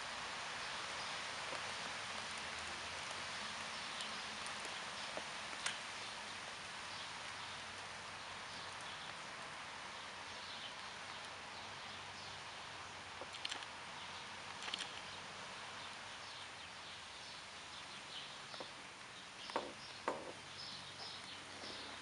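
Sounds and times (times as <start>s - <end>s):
light rain hissing: 0.0s - 22.0s
sharp taps and high chirps: 19.4s - 20.4s.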